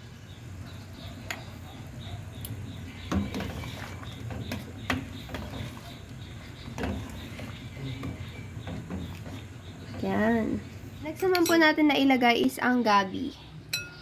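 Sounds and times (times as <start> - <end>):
ladle stirring broth in pot: 1.1 - 11.4.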